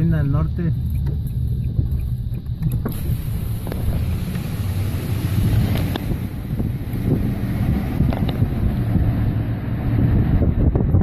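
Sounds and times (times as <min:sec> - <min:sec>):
wind buffeting phone microphone: 0:00.0 - 0:11.0
rushing hiss: 0:02.8 - 0:09.0.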